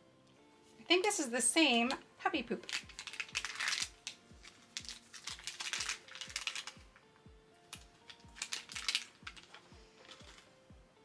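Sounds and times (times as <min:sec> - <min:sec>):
plastic sachet crinkling: 0:02.5 - 0:10.5
background music with beat: 0:03.8 - 0:11.0.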